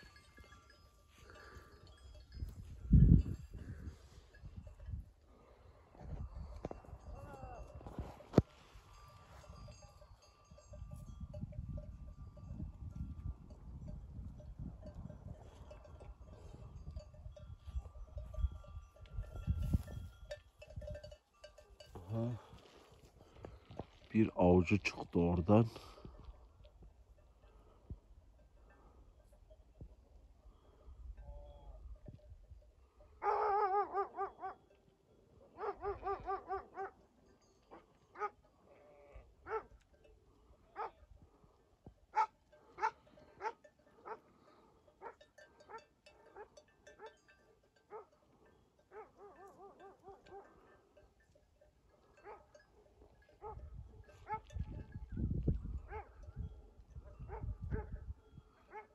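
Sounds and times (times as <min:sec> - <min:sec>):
sheep bells clinking: 0:00.0 - 0:58.9
dog barking: 0:33.2 - 0:34.6, 0:35.5 - 0:37.0, 0:38.1 - 0:38.4, 0:39.4 - 0:39.7, 0:40.8 - 0:41.0, 0:42.1 - 0:44.2, 0:45.0 - 0:47.2, 0:47.9 - 0:48.2, 0:48.9 - 0:50.6, 0:52.2 - 0:52.5, 0:53.4 - 0:53.6, 0:54.2 - 0:54.5, 0:55.9 - 0:56.2, 0:57.2 - 0:58.0, 0:58.7 - 0:58.9.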